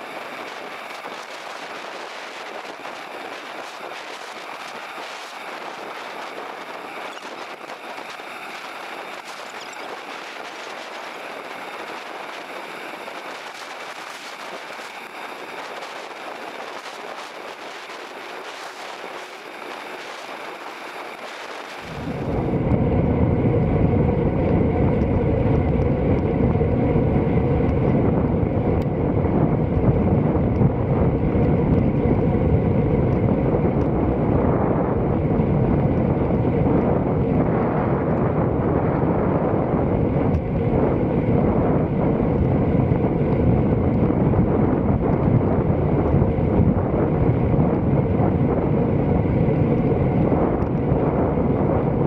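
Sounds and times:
wind on microphone: 0:00.0 - 0:52.0.

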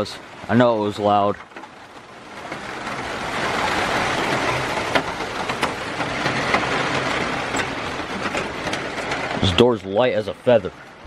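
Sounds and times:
driving rain: 0:00.0 - 0:11.0.

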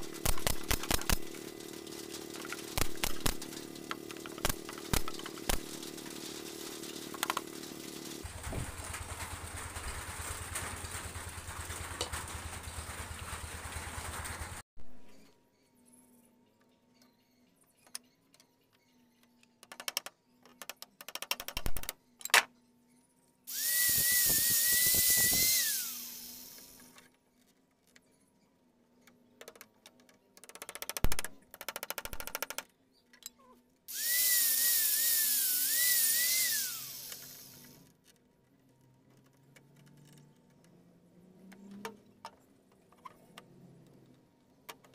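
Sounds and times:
rapid clicking: 0:00.0 - 0:14.6
power drill whining into wood: 0:23.5 - 0:27.0, 0:33.9 - 0:37.8.

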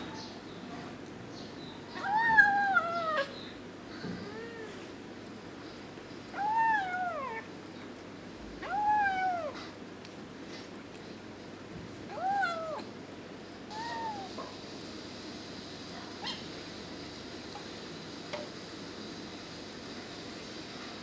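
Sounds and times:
kitten meowing: 0:02.0 - 0:03.3, 0:06.3 - 0:07.5, 0:08.6 - 0:09.7, 0:12.1 - 0:12.9, 0:13.7 - 0:14.4.

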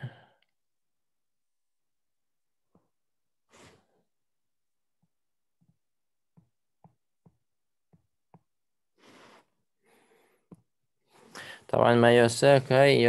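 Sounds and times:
stylus tapping tablet screen: 0:05.0 - 0:08.6, 0:10.5 - 0:10.7.

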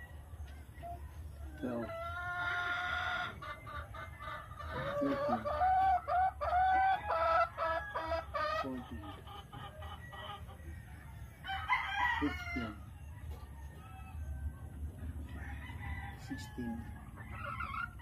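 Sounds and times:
chickens clucking: 0:00.0 - 0:18.0
rooster crowing: 0:11.1 - 0:12.8, 0:15.3 - 0:16.9.

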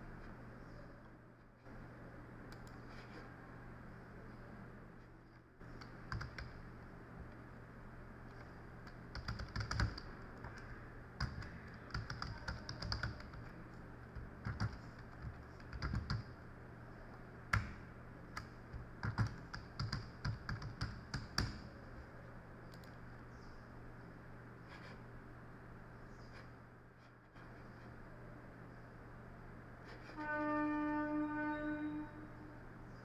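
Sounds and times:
faint low hum: 0:00.0 - 0:33.0
typing on keyboard: 0:05.7 - 0:06.6, 0:08.4 - 0:16.4, 0:17.5 - 0:21.7, 0:22.7 - 0:23.0.

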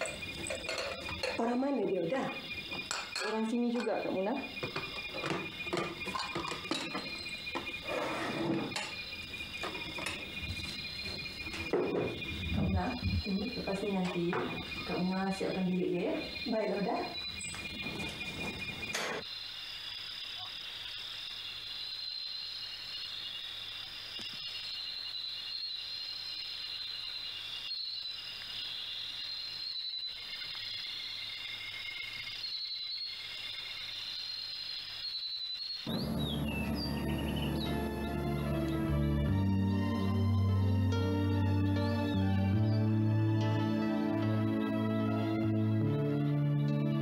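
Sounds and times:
crockery clinking: 0:00.0 - 0:01.6, 0:02.7 - 0:09.0
crickets chirring: 0:00.0 - 0:47.0.

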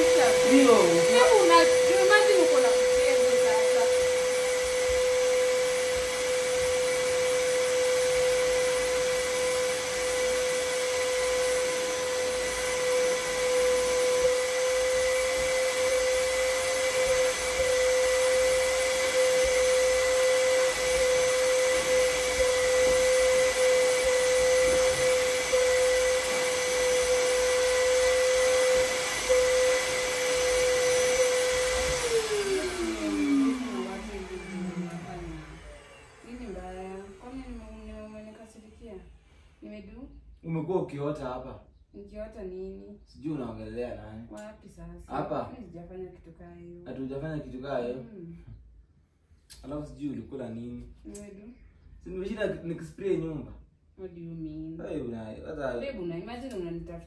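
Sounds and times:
vacuum cleaner motor whine: 0:00.0 - 0:39.6.

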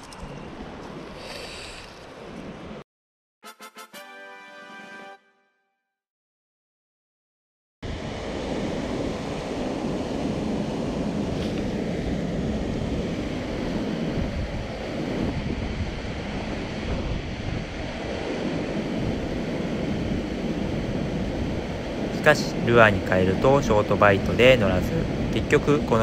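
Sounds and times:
wind buffeting microphone: 0:07.9 - 0:26.0.

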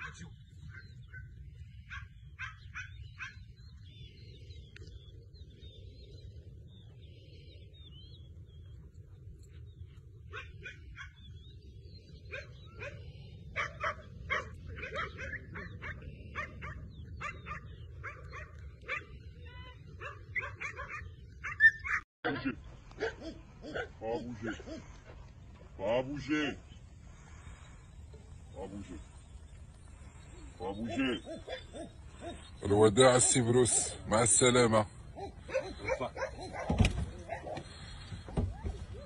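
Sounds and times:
dog barking and yipping: 0:01.9 - 0:03.4, 0:10.3 - 0:11.2, 0:13.6 - 0:19.2, 0:20.0 - 0:22.1, 0:23.0 - 0:24.9, 0:30.9 - 0:32.4, 0:35.2 - 0:37.6.

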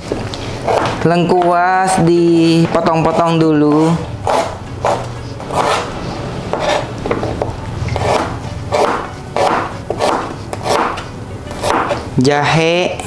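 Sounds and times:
knife cutting on plastic board: 0:03.7 - 0:12.1.

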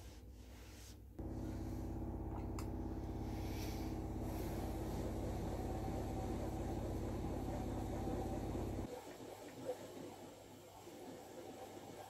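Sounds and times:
spinning wheel humming: 0:01.2 - 0:08.9.

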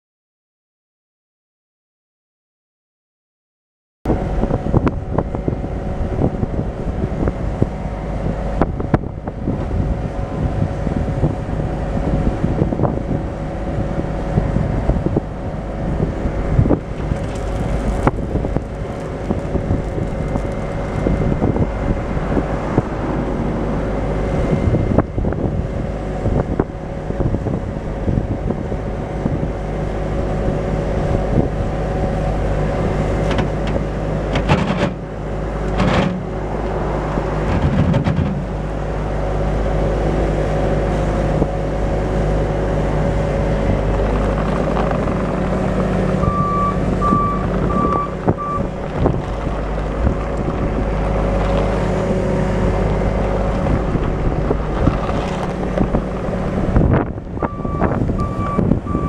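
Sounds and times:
diesel engine running: 0:04.1 - 0:59.0
reverse alarm beeping: 0:46.2 - 0:48.7, 0:57.4 - 0:59.0.

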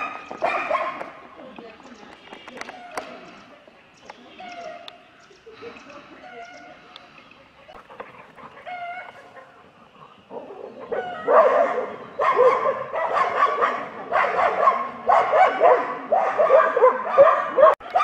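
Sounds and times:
dogs barking: 0:00.0 - 0:01.3, 0:07.6 - 0:18.0.

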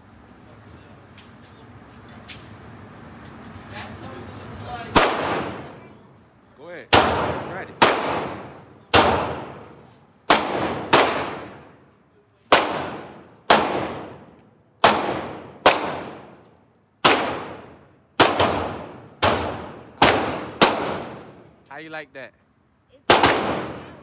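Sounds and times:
echoing pistol shots: 0:05.0 - 0:05.6, 0:06.9 - 0:09.7, 0:10.3 - 0:11.7, 0:12.5 - 0:16.4, 0:17.0 - 0:21.2, 0:23.1 - 0:24.0.

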